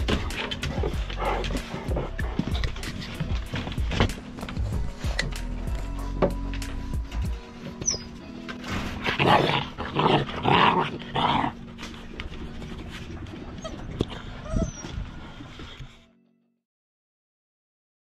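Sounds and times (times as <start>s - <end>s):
puppies barking: 7.6s - 15.5s.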